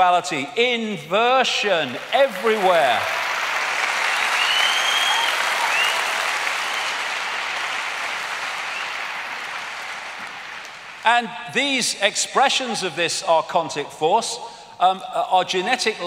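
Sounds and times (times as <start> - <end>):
large audience applauding: 1.8 - 11.2.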